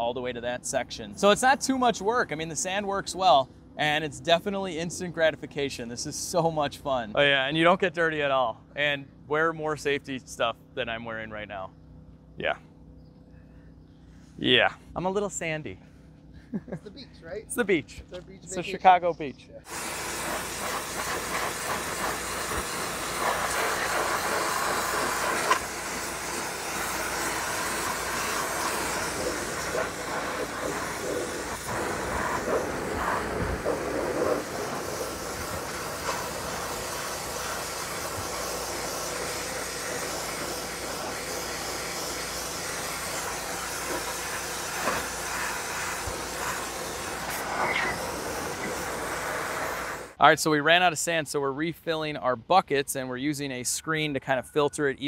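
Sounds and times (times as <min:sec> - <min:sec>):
hissing water and sand spray: 0:19.7 - 0:50.2.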